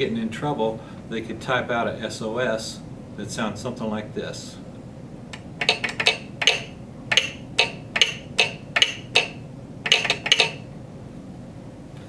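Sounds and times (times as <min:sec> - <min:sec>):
telegraph sounder clicking morse code: 0:05.6 - 0:10.6.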